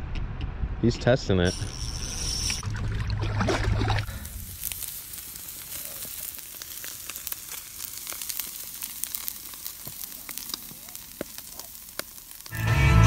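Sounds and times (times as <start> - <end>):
wood fire popping and crackling: 4.0 - 13.0
steaks sizzling on a grill: 4.1 - 13.0.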